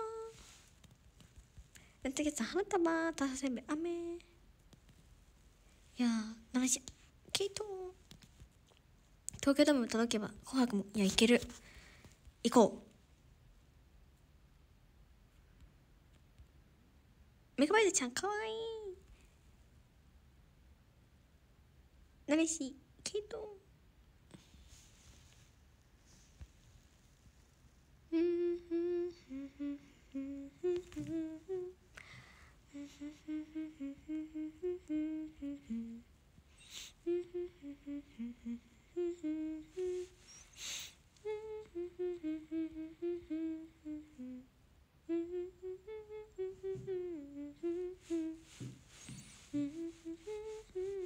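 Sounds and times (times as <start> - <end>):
woman humming a melody: 0.0 - 0.6, 28.1 - 31.9, 32.6 - 51.0.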